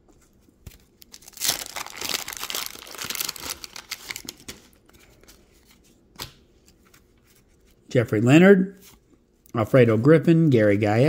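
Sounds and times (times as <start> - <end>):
wax-paper wrapper tearing and crinkling: 1.0 - 4.8.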